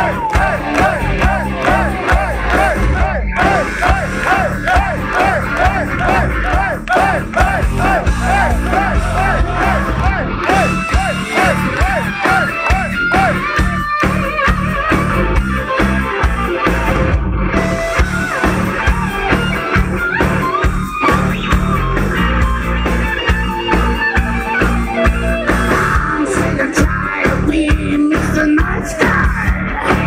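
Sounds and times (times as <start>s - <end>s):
pounding drums: 0.0s - 14.0s
heavy metal band playing live: 0.0s - 30.0s
lead electric guitar: 0.0s - 30.0s.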